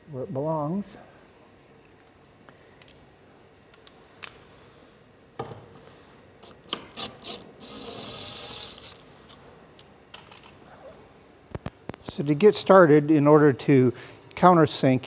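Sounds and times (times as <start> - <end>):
cordless drill running: 7.0 - 9.0.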